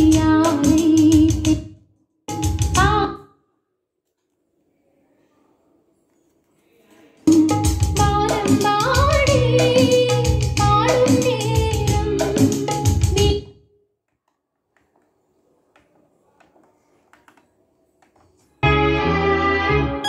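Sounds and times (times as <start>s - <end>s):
song with female singing: 0.0s - 1.6s, 7.9s - 13.5s
music through speakers: 7.3s - 13.4s.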